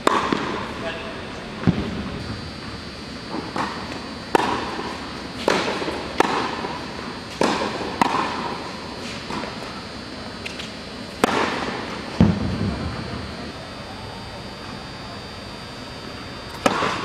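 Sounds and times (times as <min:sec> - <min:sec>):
tennis balls struck and bouncing: 0:07.3 - 0:08.4.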